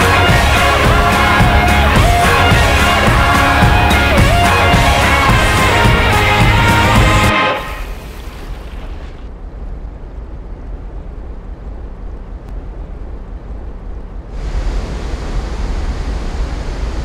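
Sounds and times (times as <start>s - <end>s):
rushing river water: 0.0s - 9.3s.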